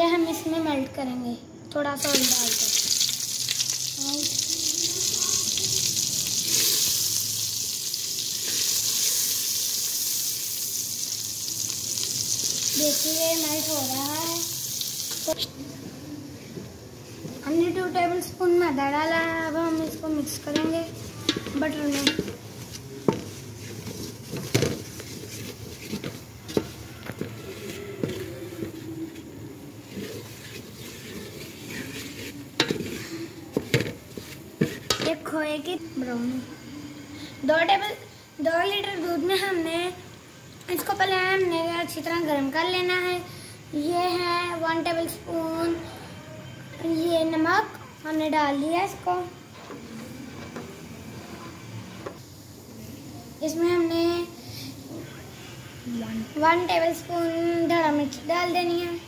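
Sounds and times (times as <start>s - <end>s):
butter sizzling in a pot: 2.0s - 15.5s, 17.5s - 37.0s, 51.5s - 59.0s
spatula scraping in metal pot: 19.7s - 22.4s, 23.5s - 35.1s.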